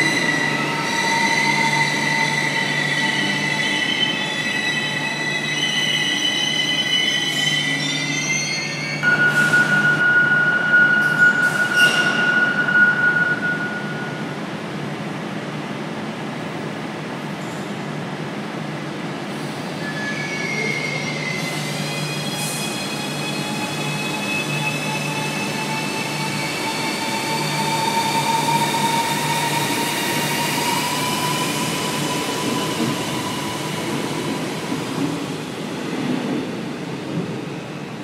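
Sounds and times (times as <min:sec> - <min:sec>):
electric train accelerating: 0:21.5 - 0:37.4.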